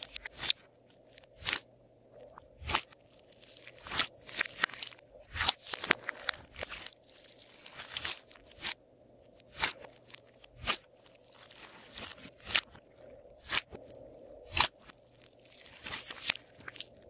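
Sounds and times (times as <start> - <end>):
slime crackling and popping: 2.6 - 8.8, 9.4 - 12.7, 14.5 - 17.0.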